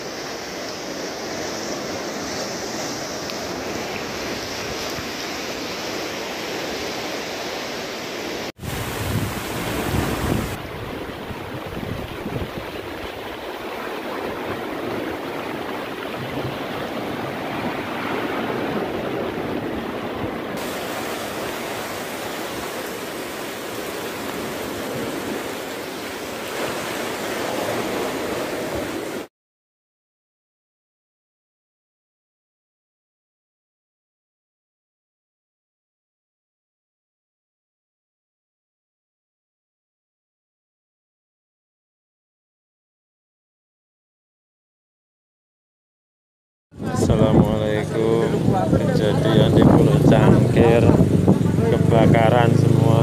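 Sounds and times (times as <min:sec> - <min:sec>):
choppy sea waves: 0:00.0 - 0:29.3, 0:46.8 - 0:53.0
wind on microphone: 0:08.6 - 0:29.3, 0:46.8 - 0:53.0.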